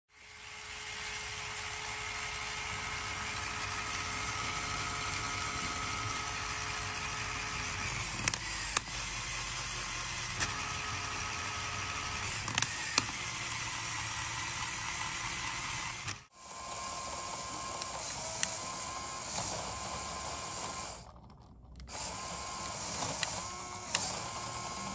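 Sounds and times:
electric motor whirring gears: 0:00.1 - 0:24.9.

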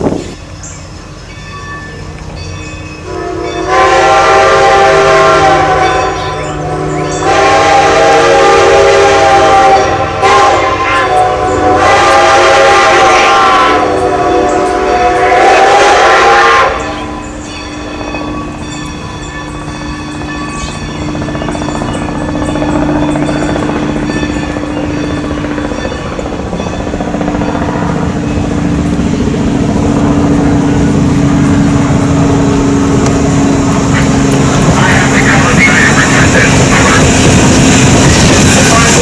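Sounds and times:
steam whistle blasts: 0:03.0 - 0:17.3.

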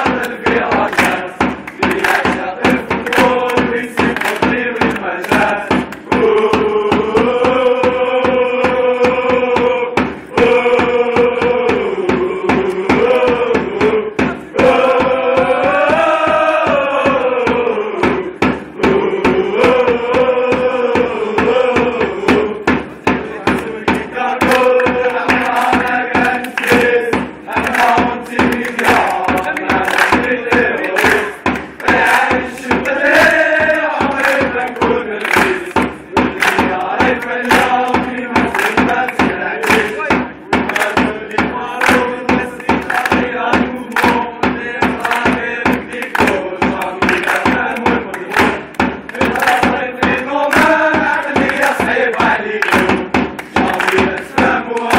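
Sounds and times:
crowd chanting in unison: 0:00.0 - 0:54.9
steady drum beat: 0:00.0 - 0:54.9.

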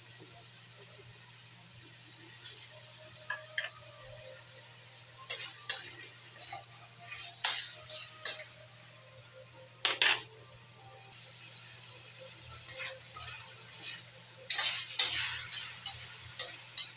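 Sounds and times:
food sizzling: 0:00.0 - 0:16.9
spatula scraping a metal wok: 0:05.3 - 0:08.5, 0:12.6 - 0:16.9.

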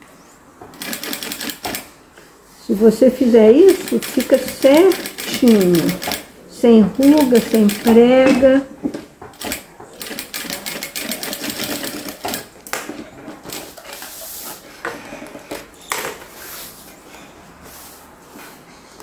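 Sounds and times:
sewing machine stitching fast: 0:00.7 - 0:01.9, 0:03.7 - 0:06.3, 0:07.0 - 0:08.0, 0:09.4 - 0:12.5.

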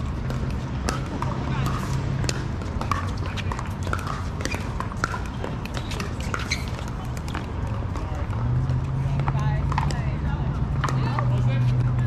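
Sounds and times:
paddles hitting plastic ball: 0:00.0 - 0:08.5.

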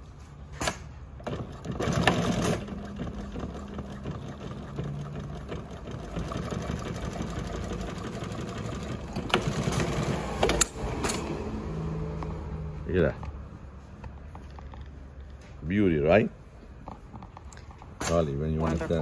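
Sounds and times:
industrial sewing machine running: 0:01.2 - 0:10.8.

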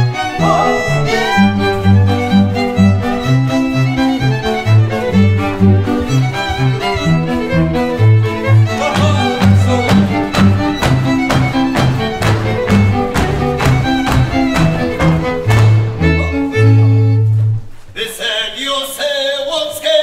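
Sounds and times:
fiddles playing fast dance tune: 0:00.0 - 0:17.4
bowed bass short notes: 0:00.2 - 0:03.9.

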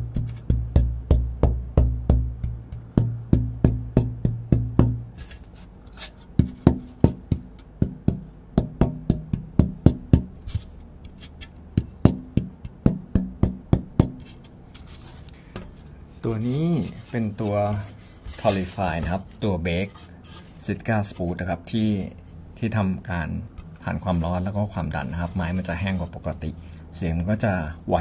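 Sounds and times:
taps on wooden guitar top: 0:00.1 - 0:05.4, 0:06.4 - 0:14.6.

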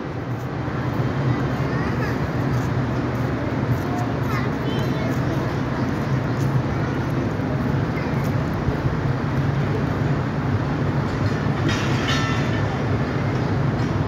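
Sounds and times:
train wheels rumbling on track: 0:00.0 - 0:14.0.

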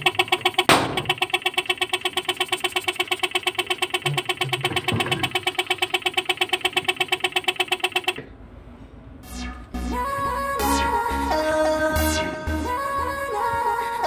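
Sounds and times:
air pump pulsing hum: 0:00.0 - 0:08.3.

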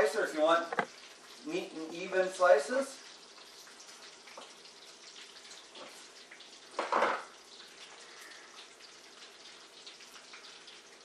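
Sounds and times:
bacon sizzling in a pan: 0:00.0 - 0:11.0.

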